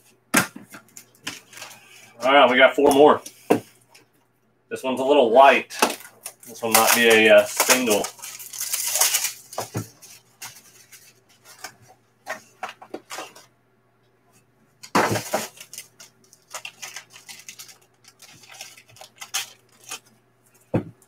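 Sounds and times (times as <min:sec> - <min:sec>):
plastic wrapper crinkling: 0:05.8 - 0:11.8, 0:14.8 - 0:20.6.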